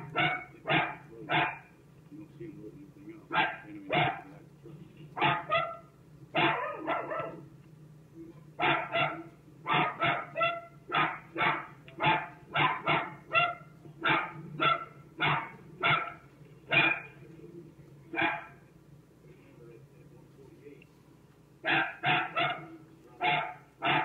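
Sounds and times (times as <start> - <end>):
dog barking: 0.0 - 1.7, 3.3 - 4.4, 5.2 - 7.5, 8.6 - 17.2, 18.1 - 18.6, 21.6 - 24.0.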